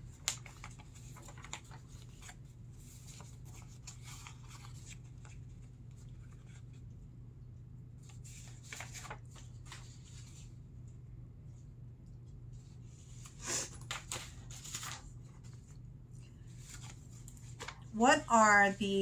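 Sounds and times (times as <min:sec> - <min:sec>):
faint clicks and rustles: 0:00.1 - 0:06.9.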